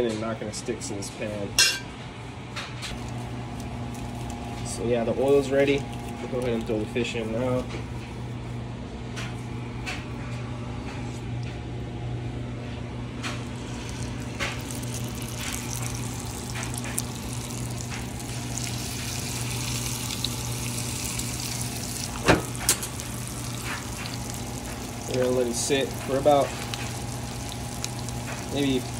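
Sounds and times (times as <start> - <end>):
oil popping: 13.3 - 28.9
fish sizzling in oil: 13.6 - 28.9.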